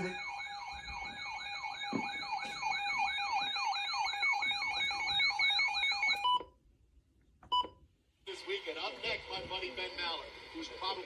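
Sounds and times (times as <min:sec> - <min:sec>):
electronic yelp siren: 0:00.0 - 0:06.4.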